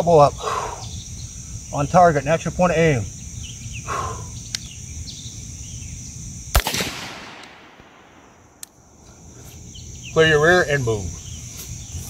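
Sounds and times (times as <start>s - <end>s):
rifle shot echoing: 6.5s - 8.6s.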